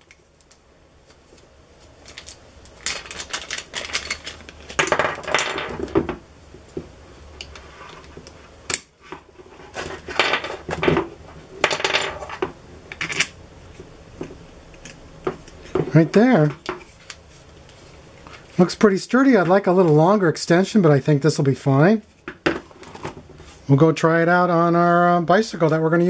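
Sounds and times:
plastic parts clicking and clattering: 2.0s - 6.0s.

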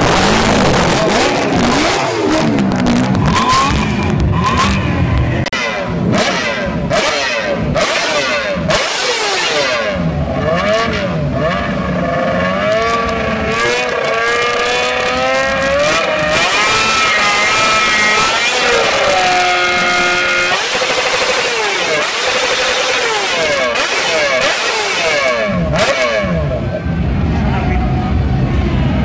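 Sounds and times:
motorcycle engine revving: 0.0s - 29.0s.

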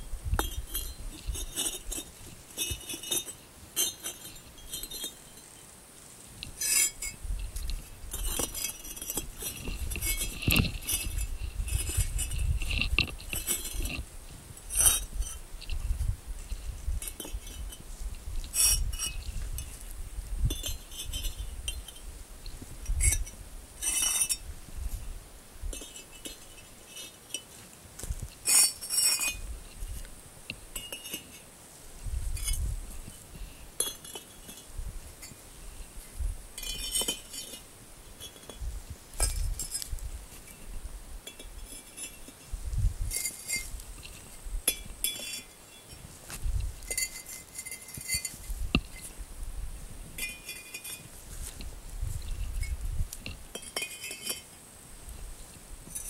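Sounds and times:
bricks clinking and scraping: 0.4s - 5.2s, 6.4s - 14.1s, 14.7s - 15.8s, 22.9s - 24.4s, 25.7s - 30.1s, 30.7s - 31.4s, 32.4s - 35.4s, 36.6s - 37.6s, 41.2s - 42.5s, 43.1s - 49.1s, 53.5s - 54.5s.

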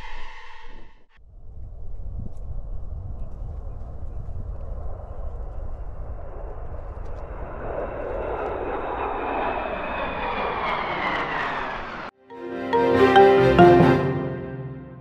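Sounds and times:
fighter jets flying overhead: 4.4s - 12.2s
music: 12.2s - 15.0s.

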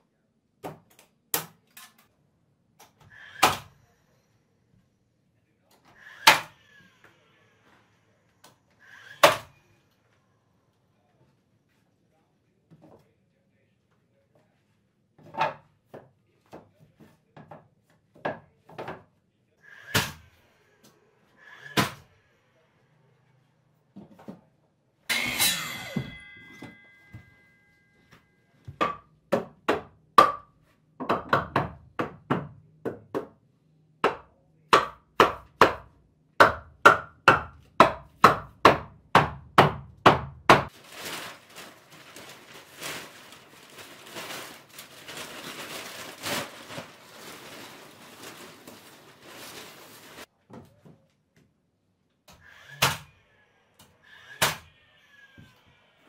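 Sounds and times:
metal clank with ringing: 25.1s - 27.9s.

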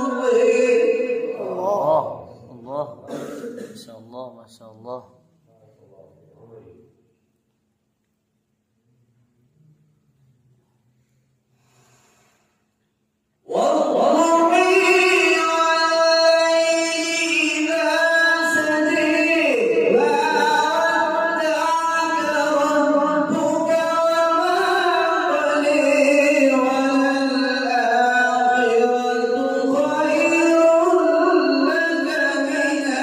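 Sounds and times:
man reciting melodically: 0.0s - 5.7s, 13.4s - 33.0s.

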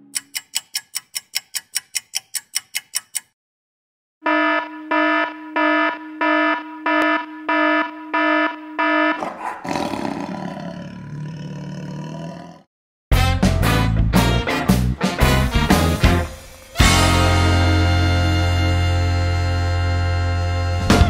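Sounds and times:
alarm beeps: 4.2s - 9.2s
rough roar: 9.2s - 12.7s.

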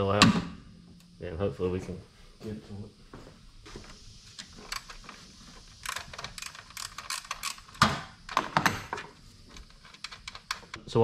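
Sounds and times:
hand ratchet clicking: 4.6s - 7.9s, 9.5s - 10.8s.

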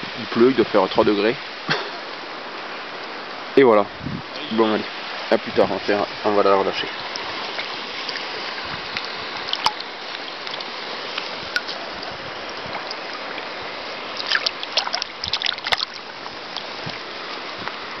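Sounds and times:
river flowing: 0.0s - 18.0s
fish splashing: 6.9s - 18.0s.

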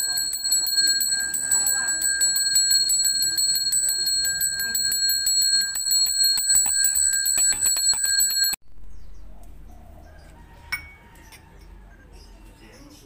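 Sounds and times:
hand bell ringing rapidly: 0.0s - 8.6s.

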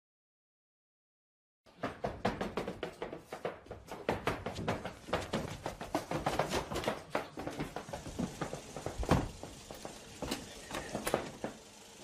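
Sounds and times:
knocks and taps: 1.8s - 9.2s.

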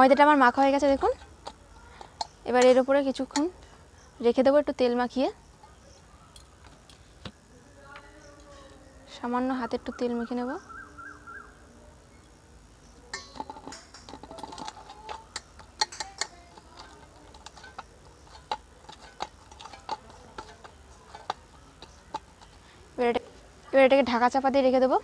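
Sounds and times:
dough knocking against metal bowl: 13.1s - 22.6s.

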